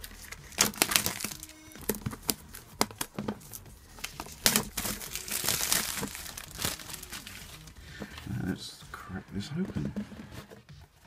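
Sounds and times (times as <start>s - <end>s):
plastic shrink-wrap crackling: 0.0s - 8.1s.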